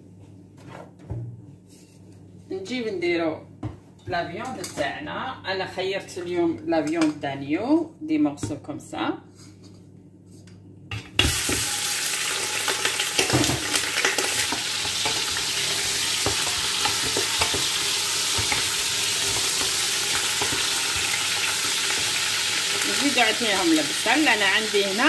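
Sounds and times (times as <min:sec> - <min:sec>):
meat sizzling in hot oil: 0:11.2 - 0:25.0
spoon stirring in pot: 0:14.3 - 0:22.8.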